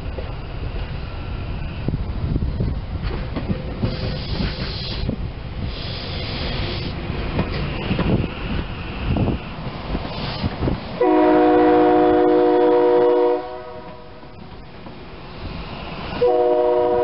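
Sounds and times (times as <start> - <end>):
train wheels rumbling on rail: 0.0 - 17.0
high hiss: 3.8 - 11.0, 15.1 - 16.3.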